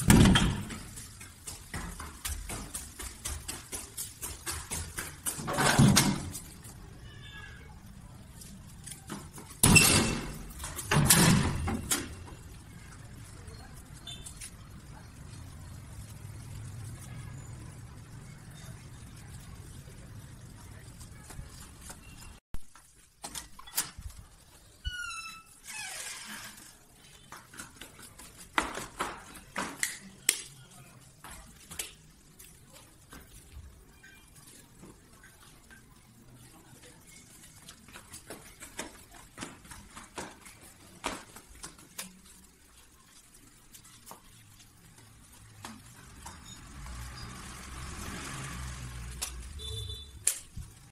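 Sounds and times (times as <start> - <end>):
footsteps: 0.0 - 6.9, 8.1 - 12.5, 25.8 - 50.9
low street rumble: 0.0 - 23.3, 24.0 - 50.9.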